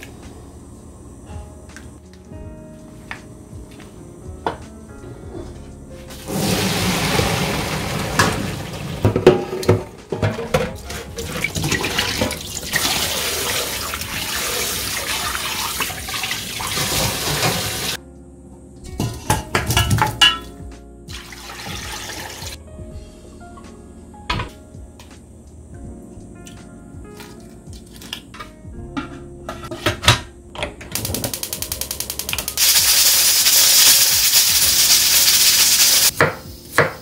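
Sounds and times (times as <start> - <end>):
tap water running: 6.1 - 18.0, 21.1 - 22.6, 31.0 - 36.1
water poured into metal colander: 6.3 - 9.2, 10.9 - 18.0, 21.1 - 22.6, 32.6 - 36.1
water poured into pot: 6.3 - 9.3, 11.2 - 18.0, 21.1 - 22.6.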